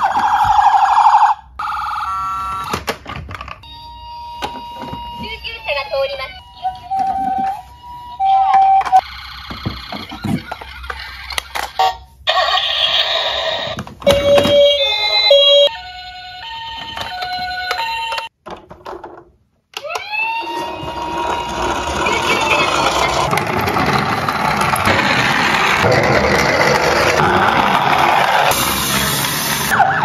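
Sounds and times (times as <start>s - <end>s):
toy electronic siren: 0.0s - 2.9s, 3.6s - 18.3s, 19.8s - 25.9s.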